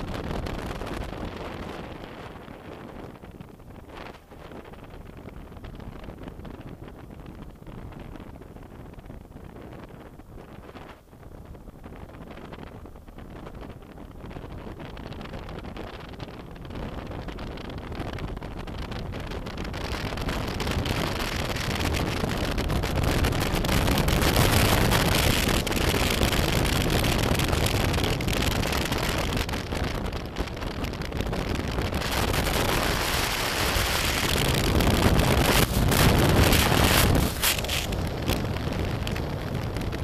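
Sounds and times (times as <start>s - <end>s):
wind rushing over microphone: 0.0s - 40.0s
low motorcycle rumble: 22.0s - 40.0s.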